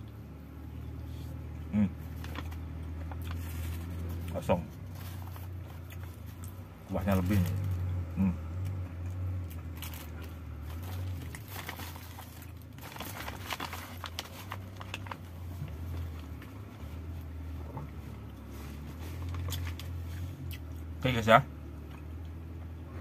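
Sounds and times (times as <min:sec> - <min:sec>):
low hum: 0:00.0 - 0:23.0
plastic and paper crinkling: 0:02.1 - 0:07.9, 0:09.7 - 0:16.6, 0:18.4 - 0:20.1.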